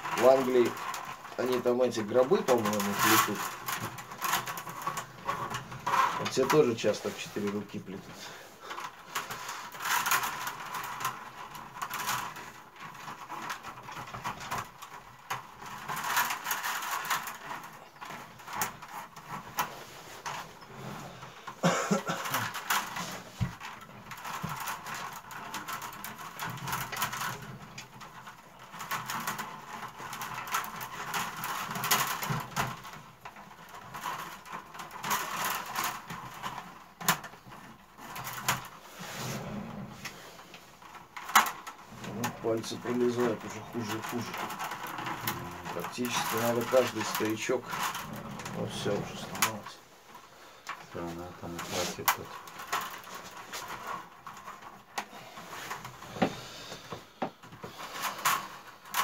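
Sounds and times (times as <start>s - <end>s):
willow rods rustling and creaking: 0.0s - 59.0s.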